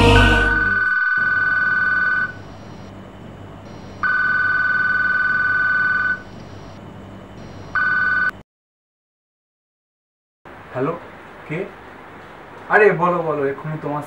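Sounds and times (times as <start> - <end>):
telephone electronic ringer: 0.6 - 2.9, 3.7 - 6.8, 7.4 - 8.4.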